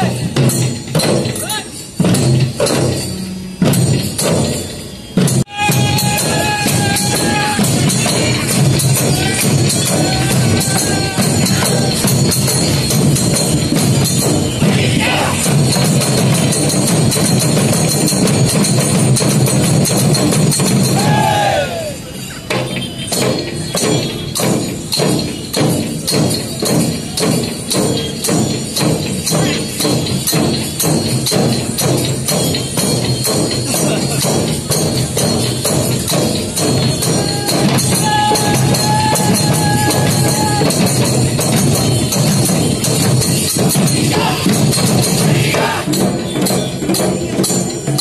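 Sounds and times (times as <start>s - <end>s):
barrel drums pounding: 0.0s - 21.5s, 22.5s - 48.0s
held high tone: 5.0s - 16.9s, 36.5s - 48.0s.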